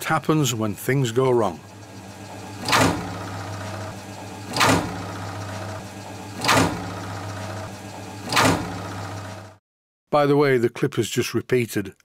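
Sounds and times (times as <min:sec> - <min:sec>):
milling machine running: 0:00.0 - 0:09.6.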